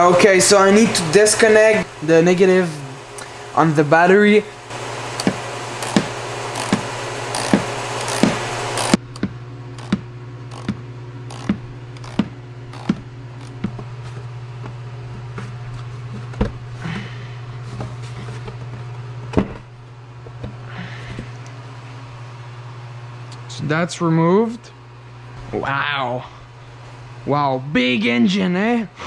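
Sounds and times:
steady low hum: 0:00.0 - 0:29.0
ratchet wrench clicking: 0:05.2 - 0:09.0, 0:09.8 - 0:10.7, 0:11.3 - 0:13.6.

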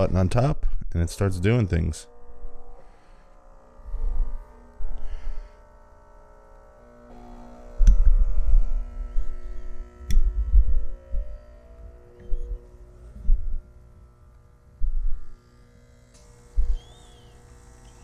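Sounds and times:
coffee machine humming: 0:02.2 - 0:18.0
low thumps: 0:07.8 - 0:13.8
sharp clicks: 0:10.0 - 0:10.4.

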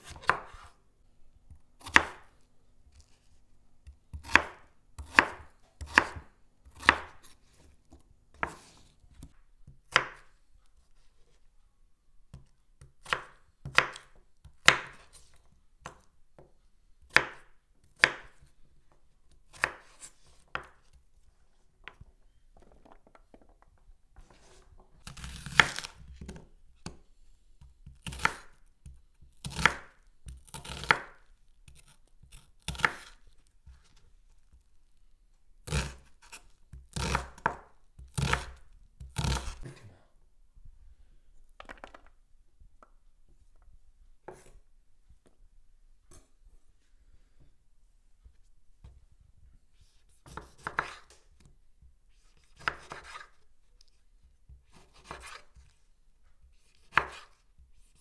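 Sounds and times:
knife chopping on wooden board: 0:01.8 - 0:02.3, 0:04.1 - 0:07.3, 0:12.8 - 0:15.1, 0:17.1 - 0:18.4, 0:35.7 - 0:39.8, 0:50.2 - 0:51.2, 0:52.6 - 0:53.3, 0:54.7 - 0:55.4, 0:56.6 - 0:57.4.

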